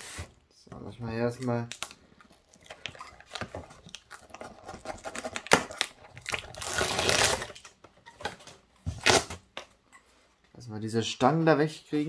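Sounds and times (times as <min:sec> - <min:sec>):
packing tape ripping: 0:03.9 - 0:07.8, 0:09.0 - 0:09.5.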